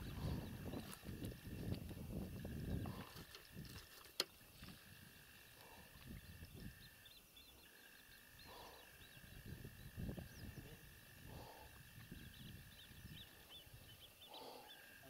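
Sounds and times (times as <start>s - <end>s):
high chirping of small animals: 0.0s - 1.6s, 5.1s - 15.0s.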